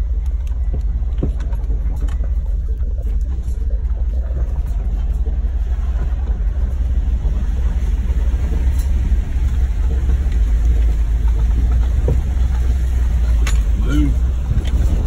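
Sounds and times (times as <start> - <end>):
engine rumbling inside car: 0.0 - 15.0.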